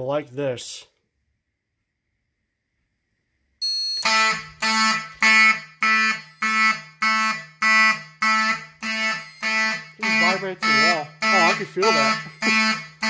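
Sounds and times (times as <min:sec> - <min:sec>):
fire alarm horn blasts: 0:03.6 - 0:13.0.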